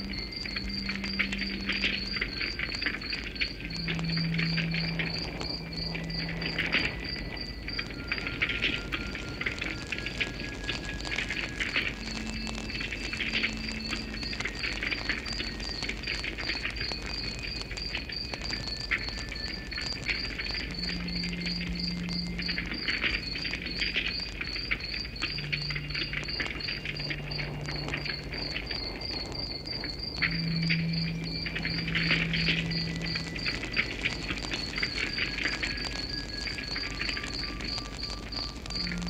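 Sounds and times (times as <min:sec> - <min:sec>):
campfire crackling and popping: 0:00.0 - 0:39.0
cricket chirping: 0:00.0 - 0:39.0.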